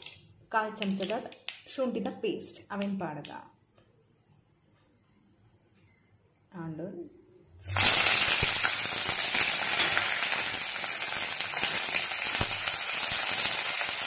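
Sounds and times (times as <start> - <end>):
chillies sizzling in hot oil: 7.6 - 14.0.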